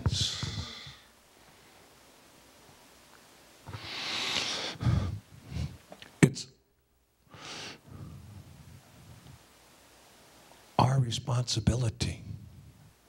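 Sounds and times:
man breathing out into microphone: 0.1s - 1.1s.

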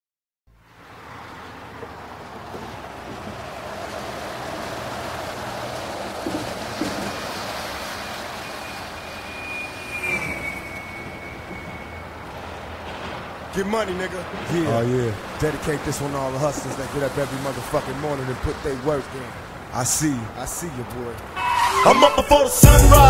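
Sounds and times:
soft knocks: 6.2s - 7.4s
thin high sliding tone: 8.0s - 12.6s, 21.4s - 23.0s.

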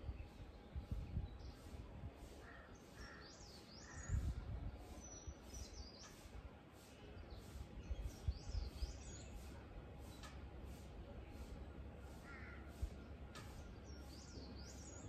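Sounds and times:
wind rumble on microphone: 0.0s - 2.4s, 3.9s - 5.5s, 7.8s - 9.2s
bird caws: 2.4s - 4.0s, 12.2s - 12.8s.

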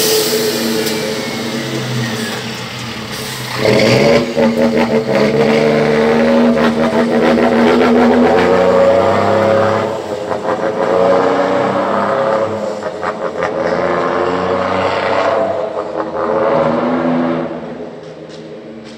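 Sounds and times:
truck diesel engine accelerating: 0.0s - 18.9s.

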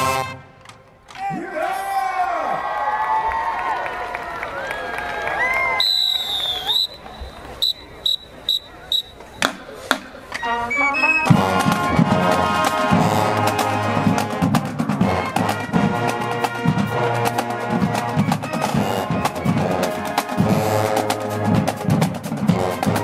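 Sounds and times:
marching band brass: 0.0s - 0.8s, 5.8s - 23.0s
whistle blasts: 5.6s - 9.4s, 10.4s - 11.5s
drumline beat: 6.9s - 10.3s, 11.3s - 23.0s.

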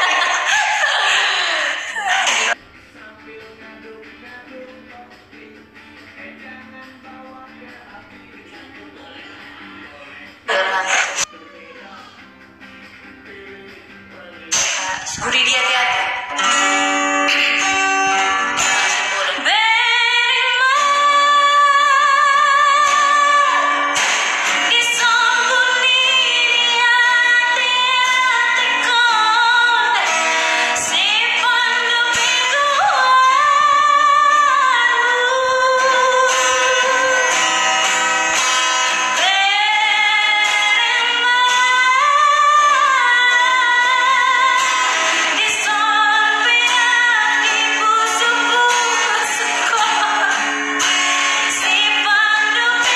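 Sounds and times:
strummed acoustic guitar: 2.1s - 52.9s
woman singing with vibrato: 10.5s - 11.3s, 14.6s - 38.0s, 39.0s - 52.9s.

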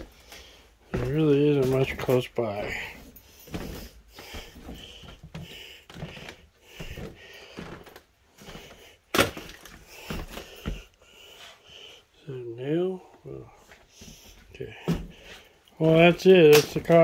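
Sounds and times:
footsteps crunching over debris: 0.0s - 10.9s.

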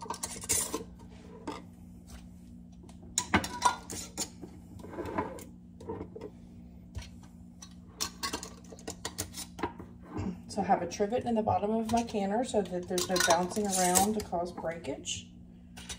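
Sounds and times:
faint steady hum: 0.0s - 15.9s.

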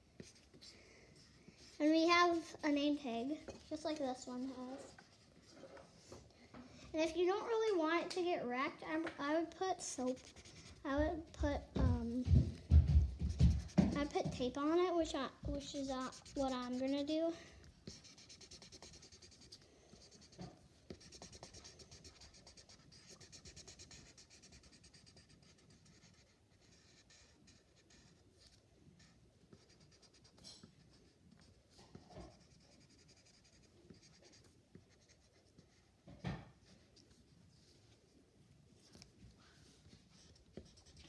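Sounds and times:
marker scratching on paper: 0.2s - 2.8s, 3.5s - 6.0s, 9.9s - 12.0s, 13.2s - 36.8s, 40.1s - 41.0s.

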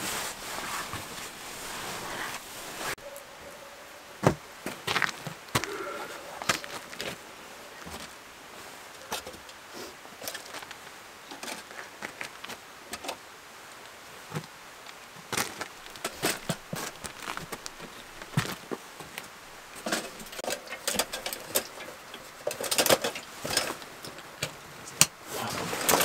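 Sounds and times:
metal lanterns clanking: 15.6s - 18.5s, 19.6s - 26.0s.

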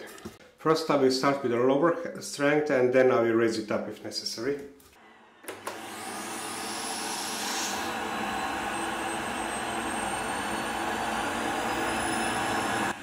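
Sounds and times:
vacuum cleaner motor whine: 5.0s - 13.0s
vacuum cleaner switch click: 5.4s - 5.9s.

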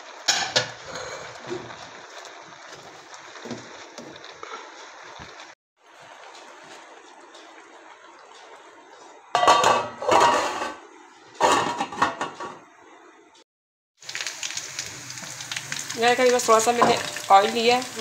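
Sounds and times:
metal lid clanking on pot: 9.4s - 10.8s, 11.4s - 12.6s.

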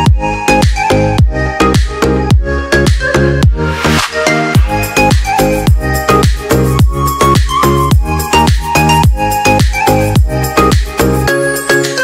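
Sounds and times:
electronic dance music: 0.0s - 12.0s
booming kick drum: 0.1s - 3.6s, 4.6s - 9.2s.

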